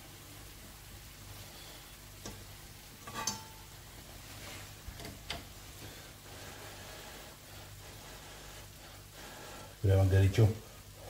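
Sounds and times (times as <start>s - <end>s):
faint background hiss: 0.0s - 11.0s
utensil tapping frying pan: 2.2s - 3.8s.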